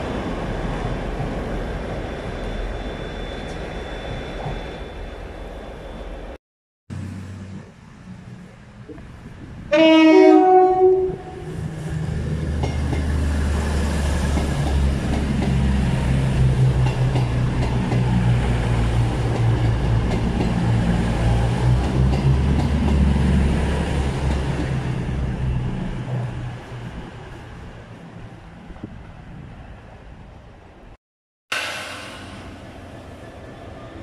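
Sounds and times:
rail noise: 0.0 - 34.0
train two-tone horn: 9.7 - 11.6.

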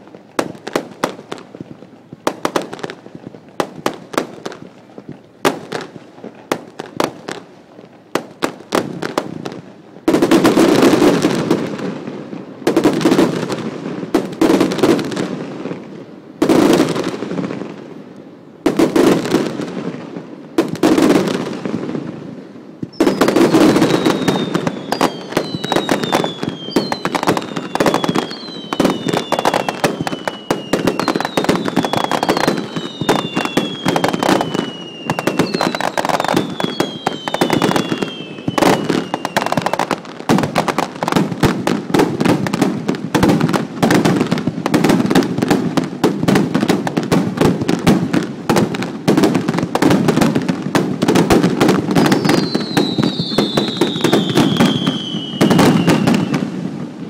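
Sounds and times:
firework whistles falling in pitch: 22.8 - 40.0, 52.0 - 56.5.

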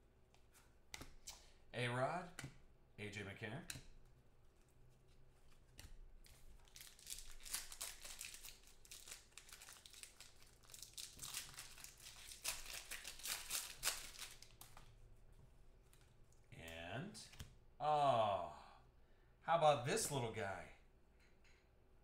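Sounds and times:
foil wrapper crinkling and tearing: 6.6 - 14.7.

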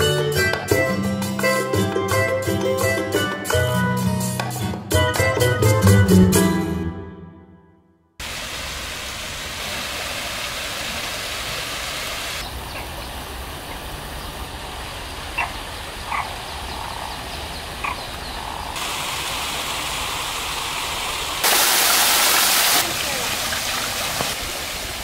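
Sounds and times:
running water: 8.2 - 25.0.

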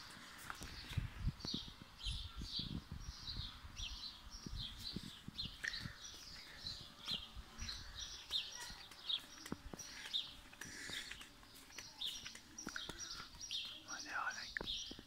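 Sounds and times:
small birds chirping: 0.0 - 15.0
footsteps on tiles: 4.8 - 13.8.

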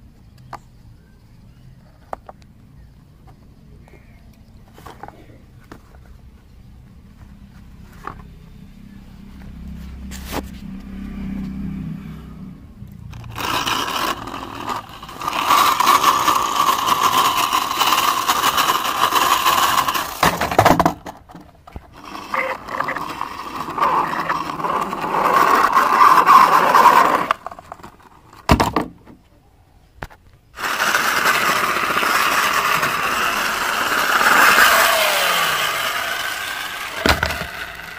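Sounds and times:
toy wheels scraping on wood: 4.7 - 6.1, 13.1 - 28.9, 30.6 - 37.9.

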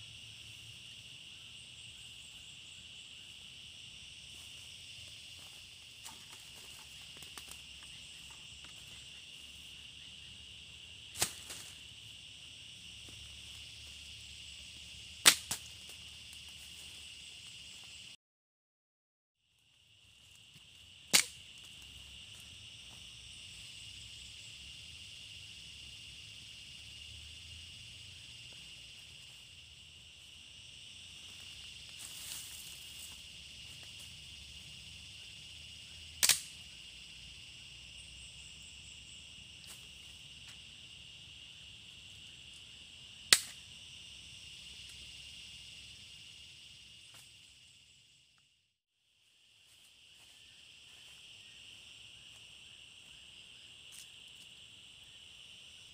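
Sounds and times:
insect chorus: 0.0 - 18.2, 19.4 - 55.9
rustling of sticks and leaves: 4.3 - 9.8, 11.1 - 12.2, 31.1 - 34.7
dry sticks snapping: 15.2 - 16.0, 21.1 - 21.4, 36.2 - 36.6, 43.3 - 43.6.

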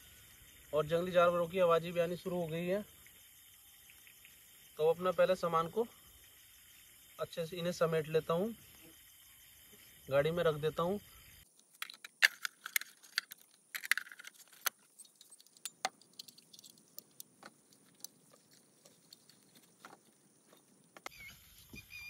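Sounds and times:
gear clinking and rattling on table: 11.8 - 17.2.

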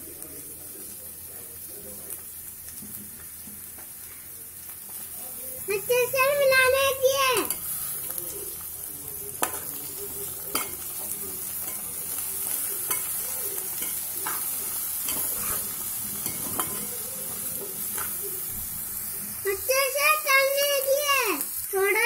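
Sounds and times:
vegetables sizzling in oil: 0.0 - 22.0
metal spatula scraping pot: 13.8 - 16.9.

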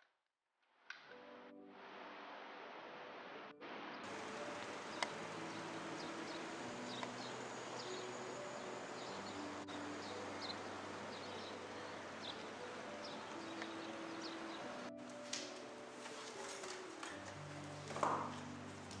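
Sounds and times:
soft background music: 1.1 - 1.9, 3.0 - 19.0
steady hiss: 1.8 - 19.0
small birds chirping: 4.0 - 14.9.

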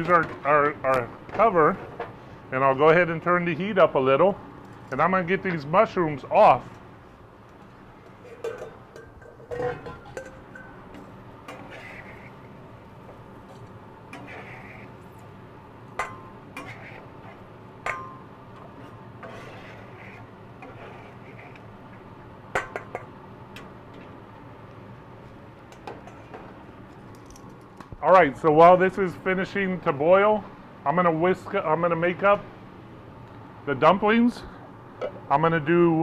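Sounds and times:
steady background noise: 0.0 - 36.0
metal utensils clinking on griddle: 8.1 - 10.8.

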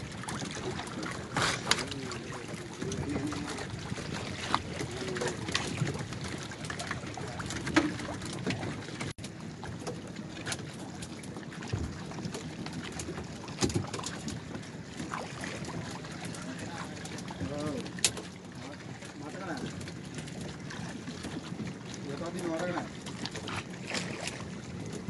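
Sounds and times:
knocks against hull: 0.0 - 18.4
water lapping around boat: 0.0 - 25.0.

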